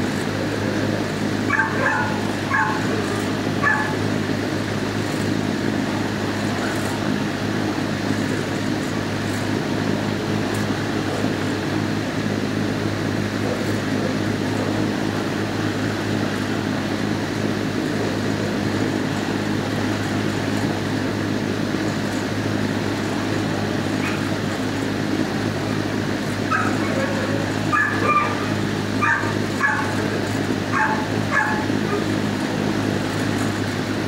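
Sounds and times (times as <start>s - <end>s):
ventilation hum and rush: 0.0s - 34.0s
dog yipping: 1.5s - 4.0s, 26.5s - 30.0s, 30.7s - 32.1s.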